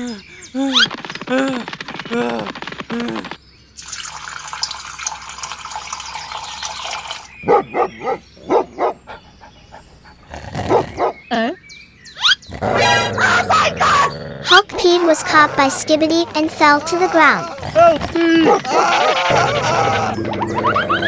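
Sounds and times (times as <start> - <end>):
dog barking: 7.4 - 9.0, 18.4 - 19.5.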